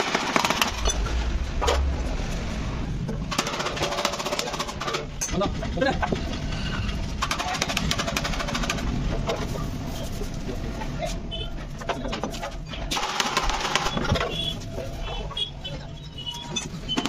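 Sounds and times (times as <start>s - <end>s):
low rumble: 0.5s - 7.3s.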